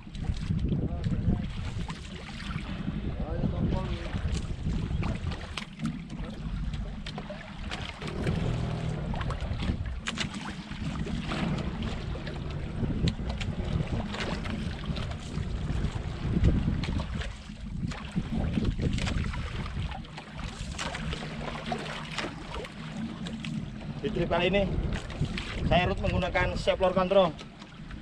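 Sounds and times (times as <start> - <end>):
water sloshing around boat: 0.0 - 28.0
wind buffeting microphone: 0.0 - 28.0
low rumble: 6.2 - 19.7.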